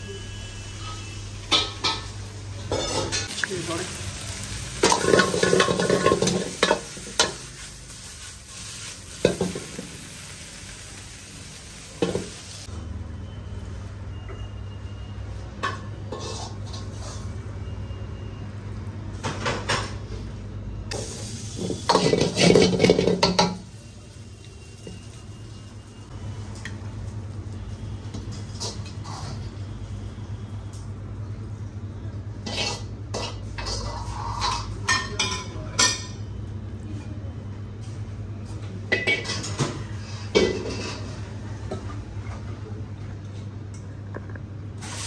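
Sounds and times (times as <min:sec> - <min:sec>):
food sizzling: 0:00.0 - 0:12.7, 0:20.9 - 0:29.5, 0:44.8 - 0:45.0
metal ladle scraping in a wok: 0:00.1 - 0:02.1, 0:04.4 - 0:10.4, 0:16.1 - 0:17.4, 0:28.3 - 0:29.7, 0:32.4 - 0:34.8.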